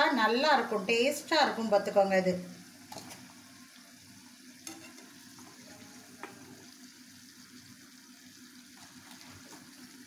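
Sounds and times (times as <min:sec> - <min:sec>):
oil sizzling in a pan: 0:00.0 - 0:10.0
metal spatula tap: 0:04.7 - 0:05.0.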